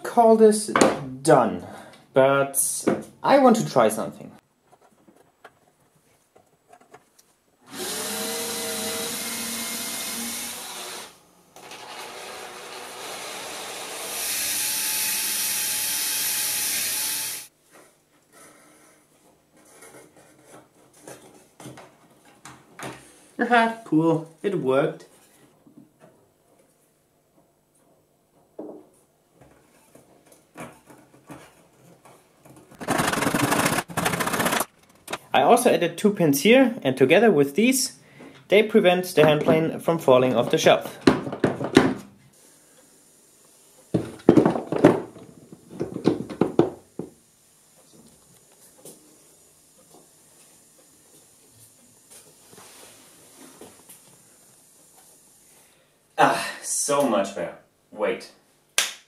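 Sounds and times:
cordless drill boring wood: 7.7 - 17.5, 32.8 - 34.7
loud rapid rattling: 32.8 - 35.2.

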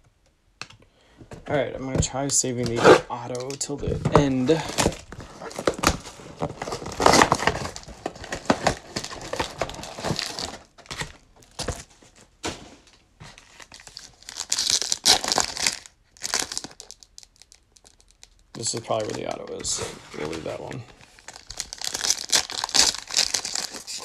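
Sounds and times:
foil packs crinkling: 3.3 - 24.0
foil pack tearing open: 4.5 - 11.8, 13.5 - 19.3, 20.1 - 24.0.

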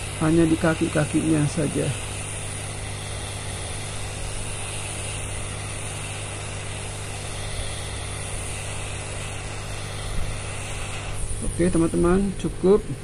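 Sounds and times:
hot air gun blowing: 0.0 - 13.0.

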